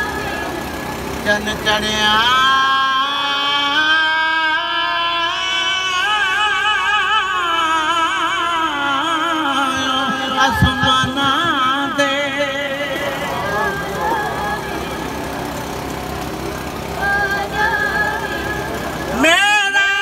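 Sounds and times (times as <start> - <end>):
man chanting a lament: 1.2 - 15.1, 19.1 - 20.0.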